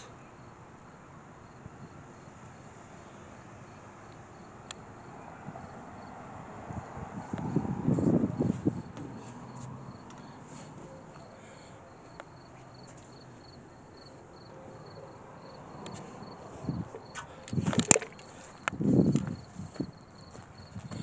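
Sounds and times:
crickets chirping: 0:00.0 - 0:21.0
footsteps on gravel and grass: 0:15.9 - 0:21.0.

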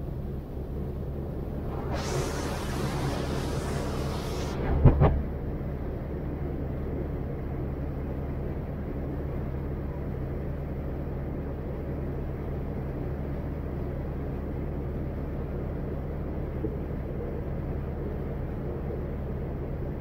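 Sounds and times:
water rushing: 0:01.6 - 0:05.2.

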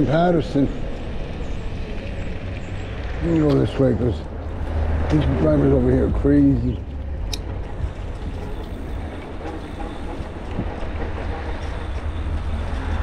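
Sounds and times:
bike rolling noise: 0:00.0 - 0:13.0
wind rumble on microphone: 0:04.3 - 0:09.5.

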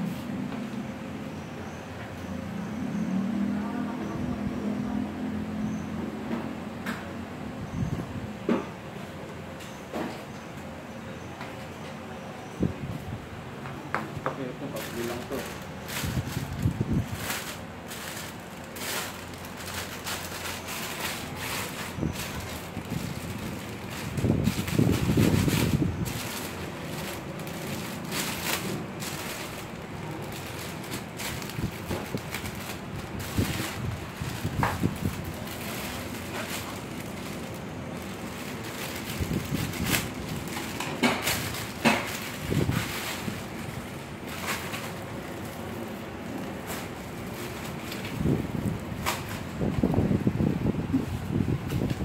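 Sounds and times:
steady background noise: 0:00.0 - 0:52.0
sharp plastic crackles: 0:14.4 - 0:50.0
plastic bag crinkling: 0:14.6 - 0:49.5.

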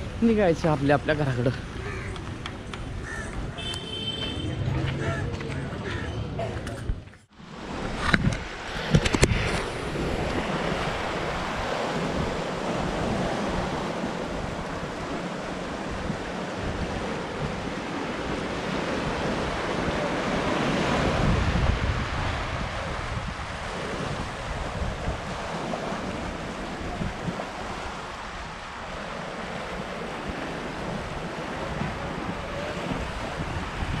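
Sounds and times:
wind buffeting microphone: 0:01.6 - 0:34.0
surf breaking over rocks: 0:07.4 - 0:34.0.

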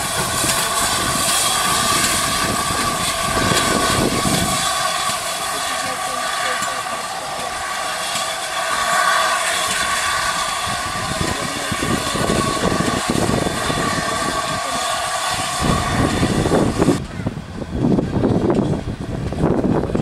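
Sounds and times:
steam hissing: 0:00.0 - 0:17.0
steam locomotive beats: 0:00.0 - 0:20.0.

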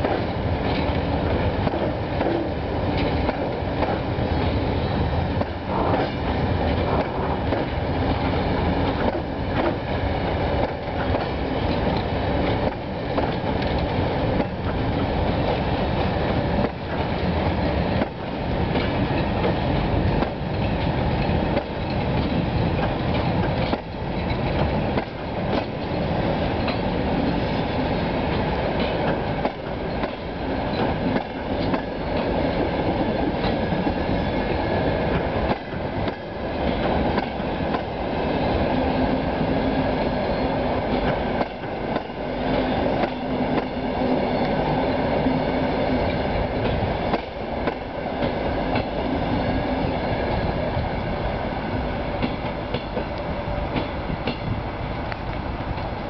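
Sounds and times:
train wheels clattering over rail joints: 0:00.0 - 0:49.6, 0:52.2 - 0:54.6.

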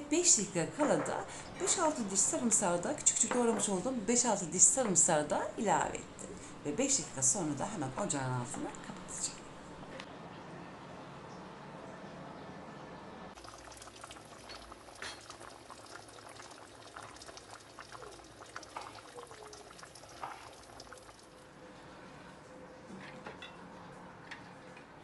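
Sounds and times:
thick sauce boiling and popping: 0:13.4 - 0:21.5.

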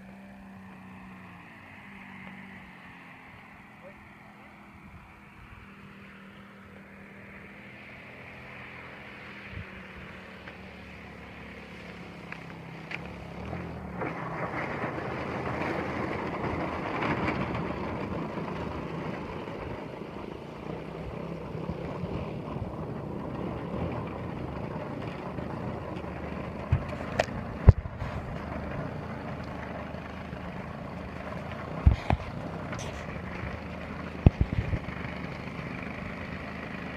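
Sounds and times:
model plane engine running: 0:00.0 - 0:36.9.

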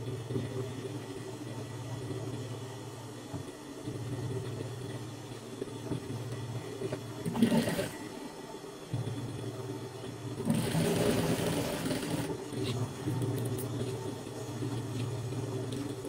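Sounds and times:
sewing machine motor humming: 0:07.2 - 0:08.0, 0:10.4 - 0:12.4.

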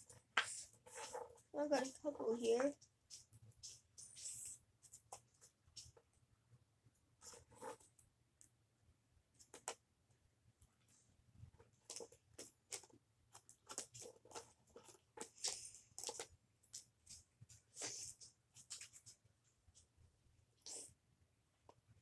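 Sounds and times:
trading cards scraping and rustling: 0:00.0 - 0:06.0.

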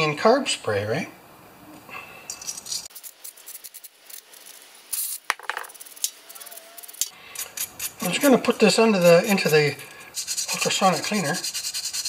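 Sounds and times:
small metal parts clicking: 0:02.3 - 0:08.2.

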